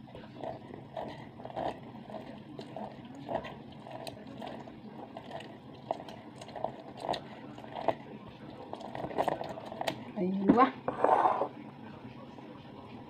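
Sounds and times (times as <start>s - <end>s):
lemon squishing on plastic reamer: 0.2s - 10.1s.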